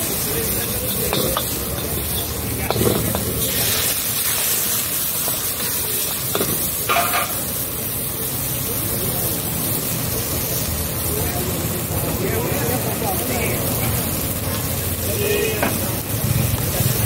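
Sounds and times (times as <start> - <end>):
food sizzling in a wok: 0.0 - 17.0
metal ladle scraping a pan: 0.9 - 7.5.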